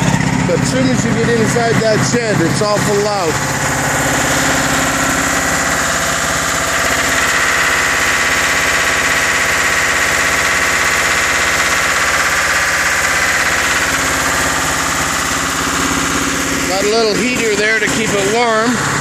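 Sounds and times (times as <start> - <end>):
diesel generator running: 0.0 - 19.0.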